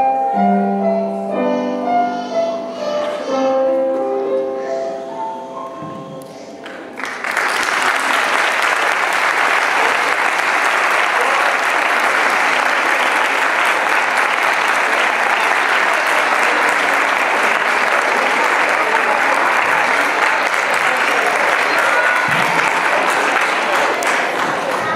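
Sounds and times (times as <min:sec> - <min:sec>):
audience applause: 0:06.6 - 0:24.9.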